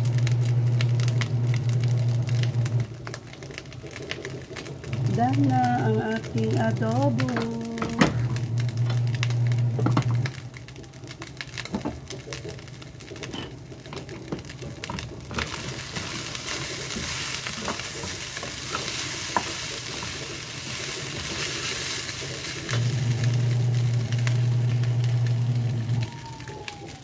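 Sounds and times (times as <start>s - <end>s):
rice sizzling in a pan: 0.0s - 27.0s
low steady hum: 4.8s - 11.9s, 13.0s - 26.8s
wooden spatula scraping pan: 14.9s - 22.2s.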